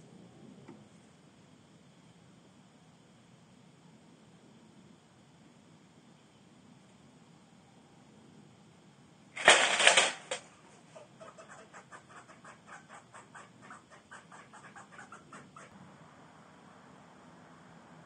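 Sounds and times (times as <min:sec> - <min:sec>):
wire mesh clicking and rattling: 0:09.4 - 0:10.4.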